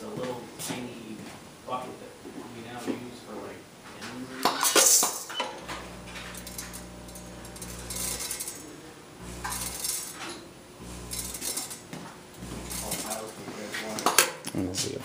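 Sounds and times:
vibratory feeder buzzing: 5.5s - 13.5s.

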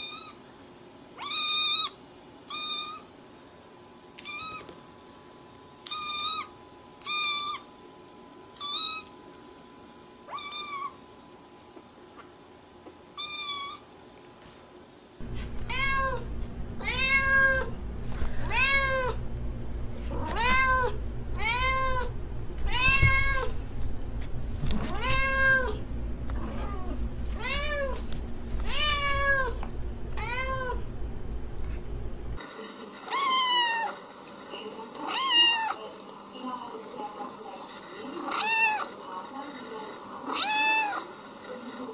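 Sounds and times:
cat meowing: 1.2s - 3.0s, 4.2s - 4.7s, 10.3s - 11.0s, 15.3s - 17.8s, 18.4s - 19.2s, 20.1s - 23.6s, 24.9s - 25.8s, 26.4s - 28.0s, 28.6s - 29.6s, 30.2s - 30.9s, 38.3s - 38.9s, 40.3s - 41.0s.

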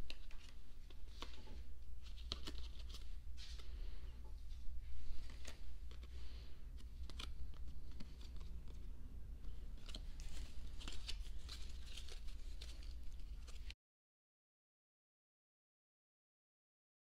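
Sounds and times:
plastic and paper crinkling: 0.0s - 4.0s, 4.8s - 13.8s
low steady hum: 0.0s - 13.7s.

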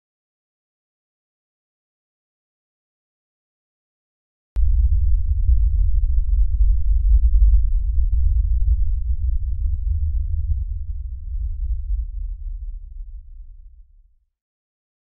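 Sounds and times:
deep bass drone: 4.6s - 14.0s.

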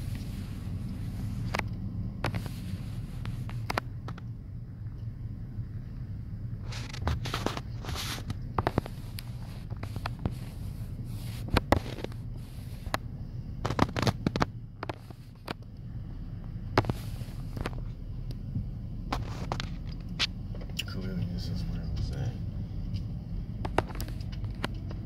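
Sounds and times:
engine and road hum: 0.0s - 25.0s
sharp clicks and crackles: 0.1s - 5.1s, 6.6s - 15.9s, 22.9s - 25.0s.

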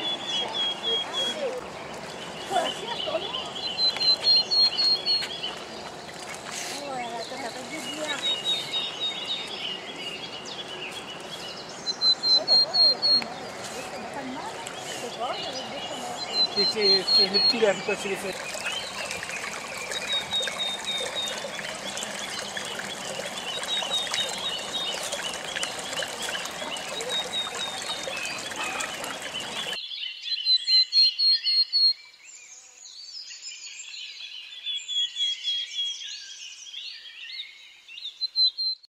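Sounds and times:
stream water trickling: 0.0s - 29.8s
small birds chirping: 0.0s - 38.8s.

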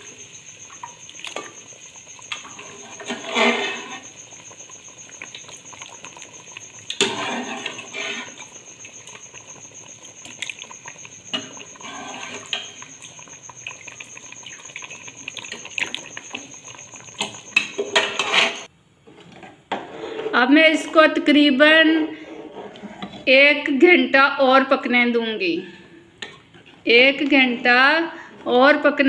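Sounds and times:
liquid bubbling: 0.0s - 18.7s
spoon scraping a steel pot: 2.4s - 4.2s, 6.9s - 9.4s, 10.3s - 18.7s.

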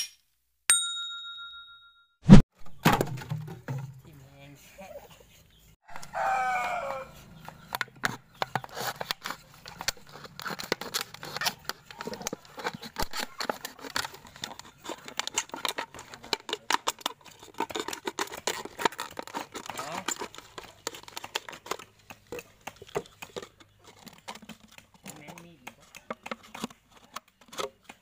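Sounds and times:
rooster crowing: 5.9s - 7.3s
knife cutting plastic bottle: 7.5s - 28.0s.

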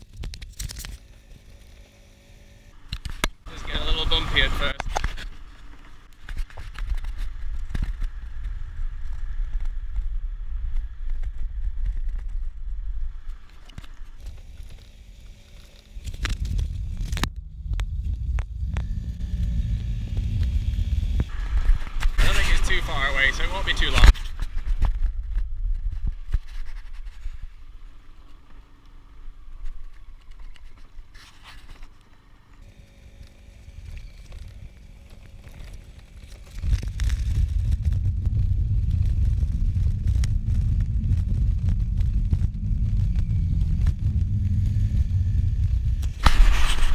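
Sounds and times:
wind rumble on microphone: 3.6s - 14.6s, 16.0s - 28.0s, 33.0s - 46.9s
small scooter engine running: 18.5s - 21.3s, 32.6s - 37.2s.

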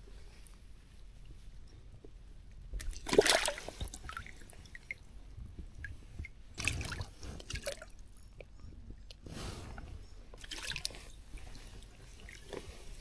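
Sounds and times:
water splashing: 2.8s - 4.9s.

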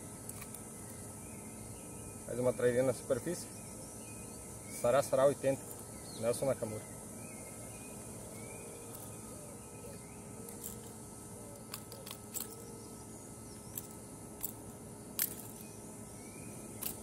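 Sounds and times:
steady outdoor hiss: 0.0s - 17.0s
sharp metallic clicks: 13.6s - 15.8s, 16.7s - 17.0s.

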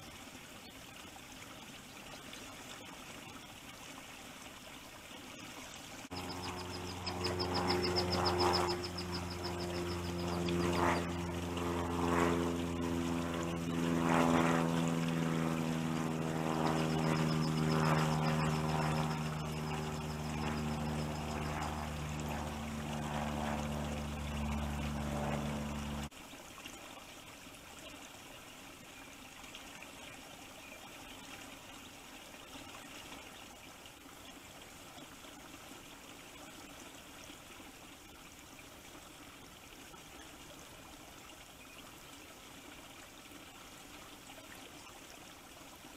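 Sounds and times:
water rushing: 0.0s - 28.2s
engine-like hum: 6.0s - 26.1s.

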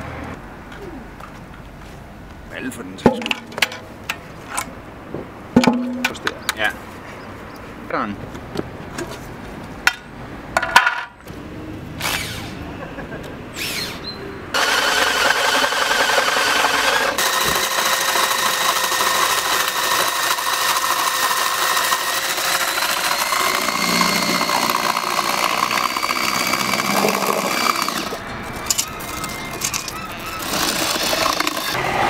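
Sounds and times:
electric drill mixing paint: 14.6s - 28.2s, 29.0s - 31.8s.

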